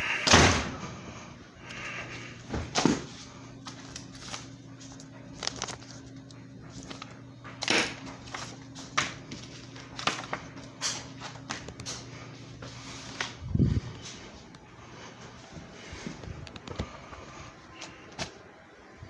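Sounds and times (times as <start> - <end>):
paper envelopes rustling: 2.8 - 18.6.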